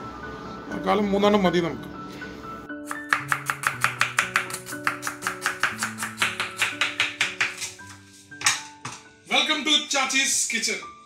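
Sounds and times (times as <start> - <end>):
knife chopping on plastic board: 2.9 - 9.0.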